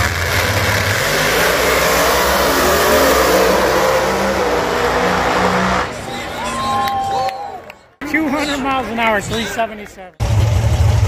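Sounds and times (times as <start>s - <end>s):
drag race car engines accelerating: 0.0s - 6.5s, 10.2s - 11.0s.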